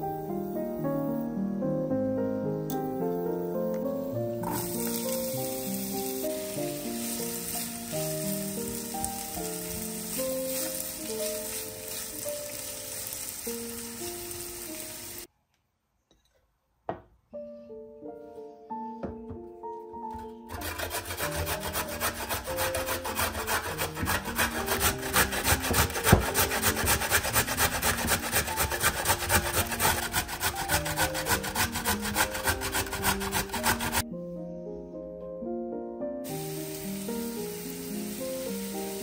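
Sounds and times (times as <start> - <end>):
onions sizzling in frying pan: 4.4 - 15.3, 36.3 - 39.0
carrot rasping on metal grater: 20.5 - 34.0.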